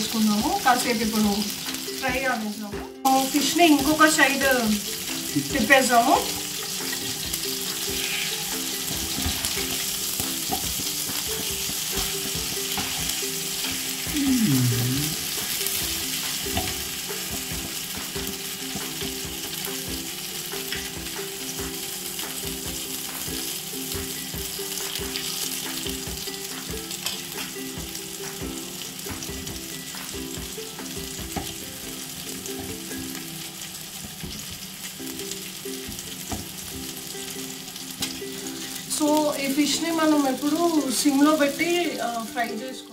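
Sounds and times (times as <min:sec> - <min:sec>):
fish sizzling in hot oil: 0:00.0 - 0:42.9
metal spatula scraping pan: 0:07.7 - 0:09.9.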